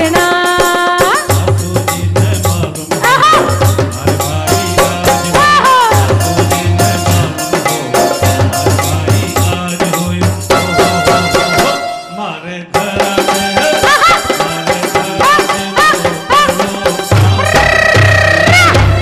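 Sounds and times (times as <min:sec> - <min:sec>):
dholak drumming: 0:00.0 - 0:19.0
keyboard melody with bending notes: 0:03.4 - 0:12.4.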